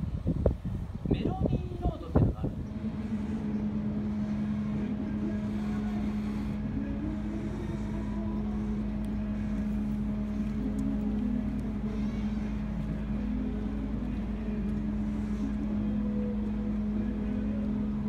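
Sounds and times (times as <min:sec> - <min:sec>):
ship engines droning: 0:00.0 - 0:18.0.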